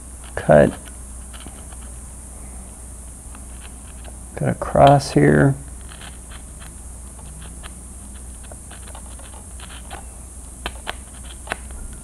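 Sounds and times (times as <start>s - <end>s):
hobby knife cutting foam: 7.2s - 10.0s, 10.6s - 11.7s.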